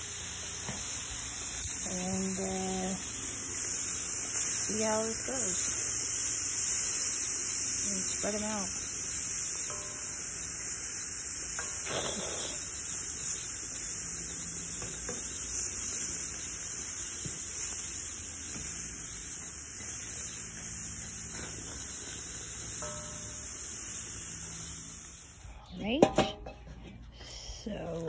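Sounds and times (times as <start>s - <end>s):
shrimp sizzling: 0.0s - 25.5s.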